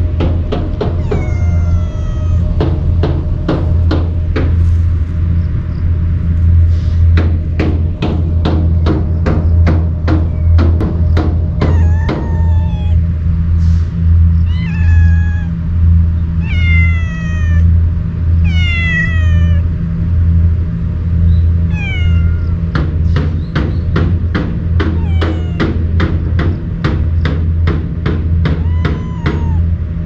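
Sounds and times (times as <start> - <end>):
cat meowing: 0.7 - 3.1, 11.5 - 13.2, 14.4 - 15.8, 16.4 - 19.9, 21.6 - 22.8, 24.8 - 26.2, 28.4 - 30.0.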